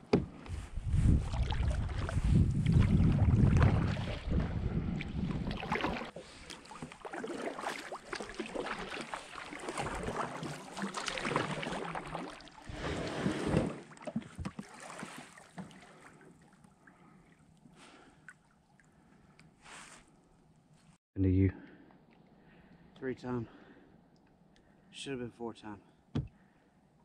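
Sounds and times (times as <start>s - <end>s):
wind buffeting microphone: 0.5s - 5.8s
paddle strokes splashing in water: 1.0s - 18.8s.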